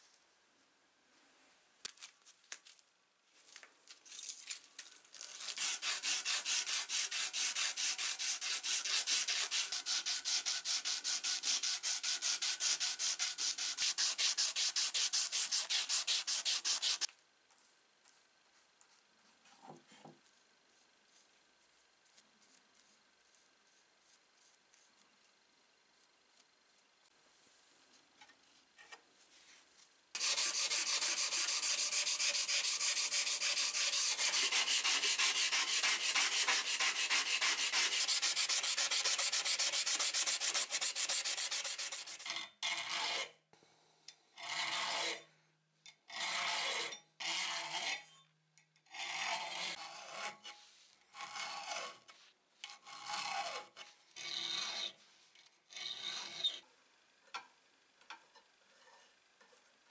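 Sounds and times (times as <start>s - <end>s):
fast scraping on steel: 5.4s - 17.1s, 30.2s - 43.3s, 49.1s - 55.0s
file strokes sharpening saw: 5.4s - 17.1s, 30.2s - 43.4s, 44.4s - 45.2s, 46.1s - 48.2s, 48.9s - 55.1s, 55.7s - 56.6s.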